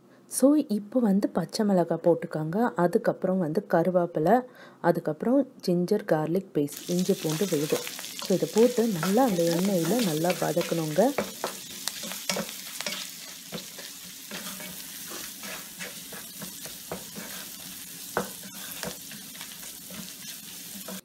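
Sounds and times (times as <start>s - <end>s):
food sizzling in hot oil: 6.7s - 21.0s
wooden spatula scraping a pan: 7.2s - 21.0s.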